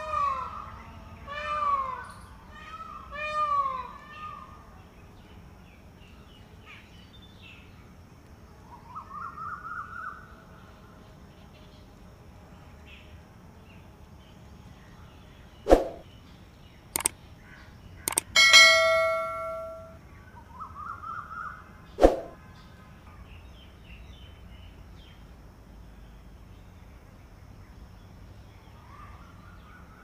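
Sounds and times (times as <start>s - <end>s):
mouse clicks: 18.1s - 18.4s
bright ringing chime: 18.2s - 20.0s.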